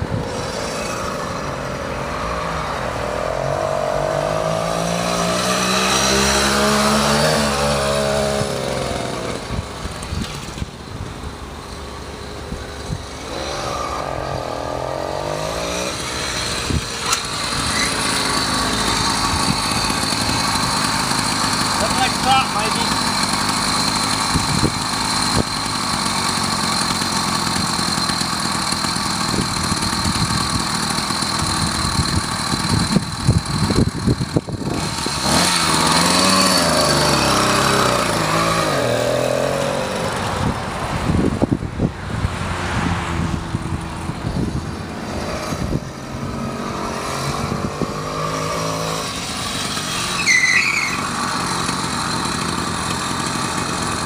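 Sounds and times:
small gas engine running: 0.0s - 54.0s.

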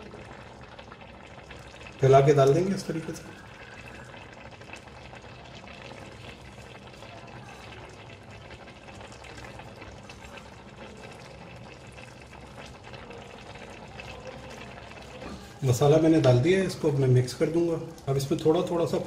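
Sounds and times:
rice and stock bubbling in a pot: 0.0s - 19.0s.

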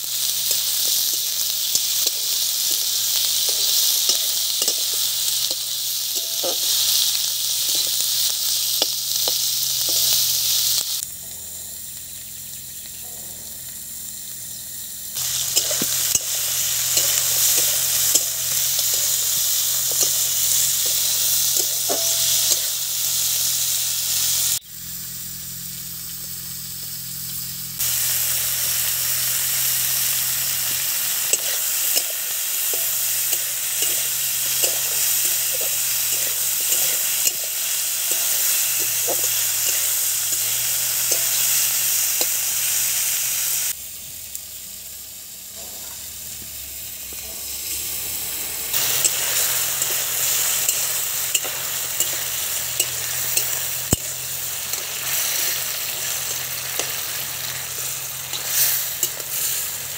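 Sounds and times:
meat sizzling in a wok: 0.0s - 59.9s
metal spatula scraping and clinking: 0.3s - 10.3s, 15.2s - 23.0s, 31.2s - 42.5s, 48.7s - 59.9s.

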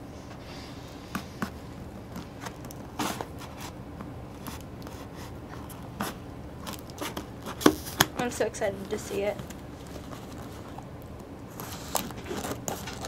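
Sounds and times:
scissors cutting packing tape: 6.0s - 8.2s, 11.5s - 13.0s.

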